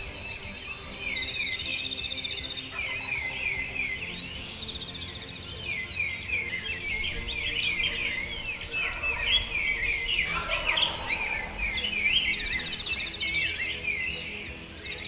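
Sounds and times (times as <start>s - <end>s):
bird's fast trill: 0.0s - 15.0s
songbirds chirping: 0.0s - 15.0s
turkey gobbling: 2.7s - 4.4s, 6.6s - 14.8s.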